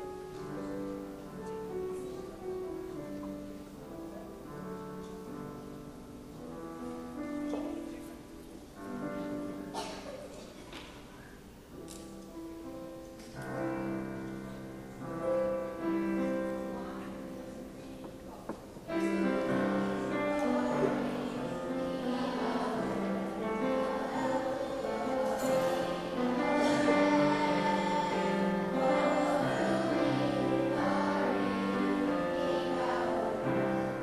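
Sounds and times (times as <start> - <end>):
piano playing held chords: 0.0 - 10.0, 12.2 - 18.0, 18.8 - 34.0
children's choir singing: 12.6 - 34.0.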